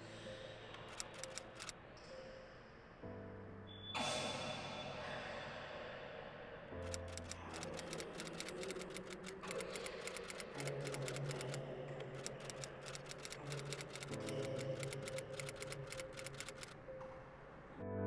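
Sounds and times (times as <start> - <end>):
keyboard typing: 0.8 - 1.7, 6.8 - 16.8.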